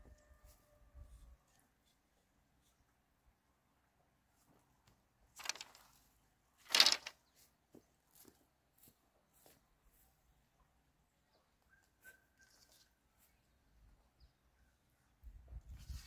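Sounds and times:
bamboo slats rustling and scraping: 5.4 - 7.3.

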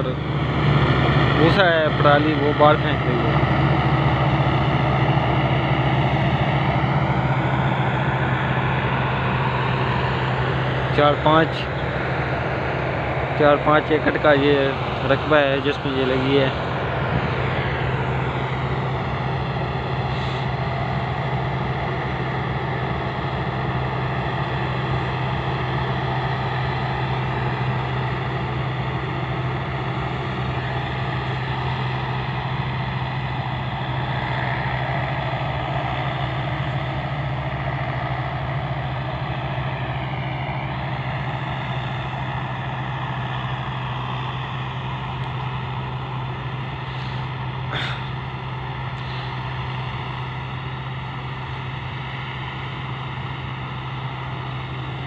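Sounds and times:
combine harvester engine drone: 0.0 - 55.0.

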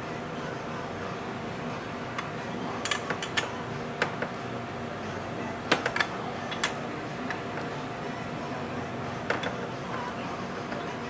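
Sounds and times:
steady background hum: 0.0 - 11.0
metal parts clicking and tapping: 5.7 - 7.4.

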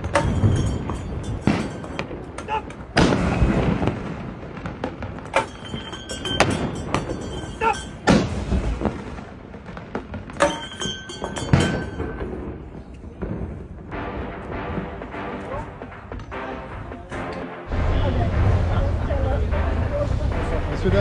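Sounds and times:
cannons firing with echo: 0.0 - 15.2.

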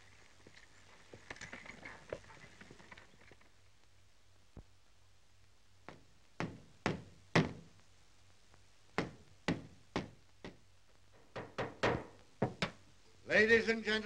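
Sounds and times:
hammer knocking a nail: 11.3 - 12.8.

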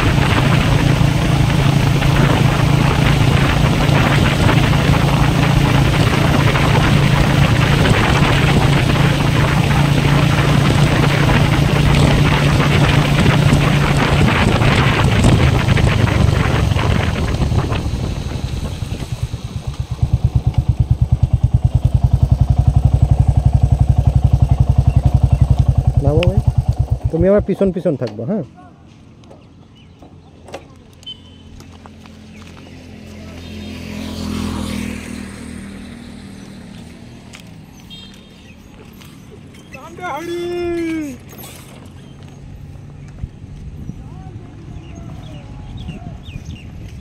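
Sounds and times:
wind rush over microphone: 0.0 - 27.6, 42.9 - 47.0
motorcycle engine running: 0.0 - 28.1, 29.4 - 47.0.

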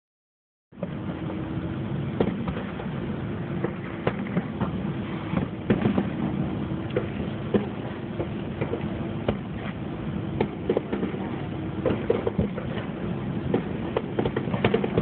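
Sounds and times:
fireworks shells bursting: 13.5 - 15.0.

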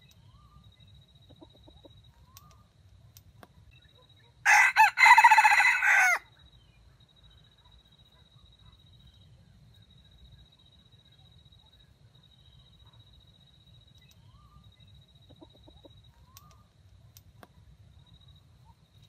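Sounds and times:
rooster crowing: 4.4 - 6.3.

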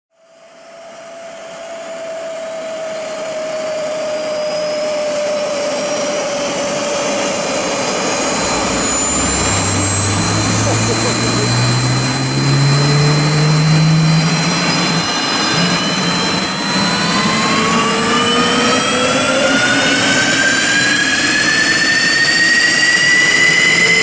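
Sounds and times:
jet engines spooling up: 0.3 - 24.0.

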